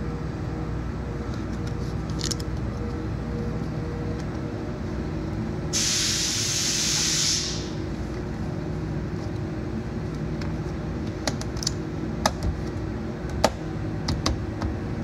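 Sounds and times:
steady low hum: 0:00.0 - 0:15.0
loud hissing of air: 0:05.7 - 0:07.9.

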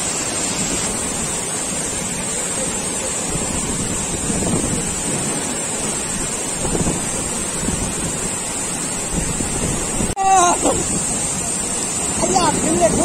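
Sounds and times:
waterfall rushing: 0:00.0 - 0:13.0
wind buffeting microphone: 0:02.9 - 0:13.0
person's voice: 0:10.2 - 0:10.9, 0:12.1 - 0:13.0.

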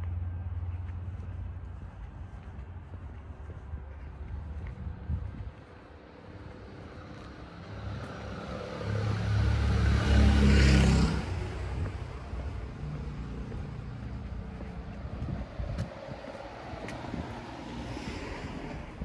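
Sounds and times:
vehicle driving past: 0:06.7 - 0:19.0.

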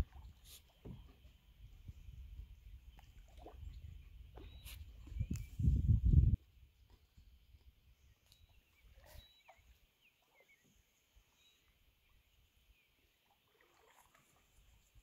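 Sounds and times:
faint bird chirps: 0:03.7 - 0:05.9, 0:08.0 - 0:13.2.

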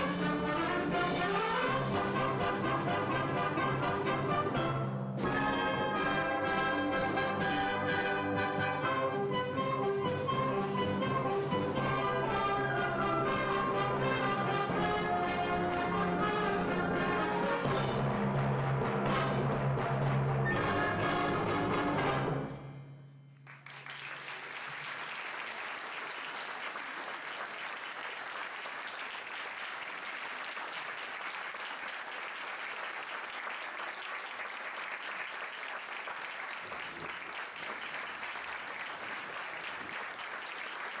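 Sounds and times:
audience applauding: 0:23.4 - 0:41.0.

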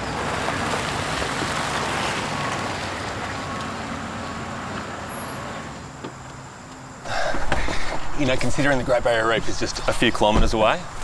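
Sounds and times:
car driving past slowly: 0:00.0 - 0:06.4.

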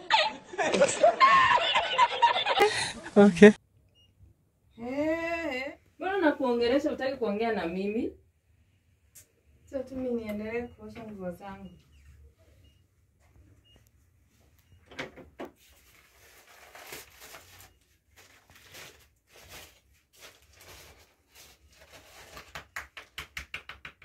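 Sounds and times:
plastic bag crinkling: 0:15.8 - 0:22.5.

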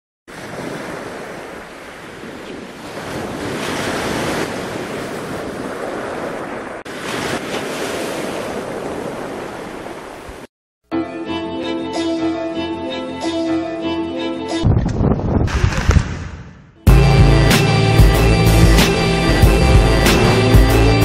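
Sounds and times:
wind buffeting microphone: 0:14.6 - 0:16.2
ocean surf rushing: 0:17.5 - 0:21.0.

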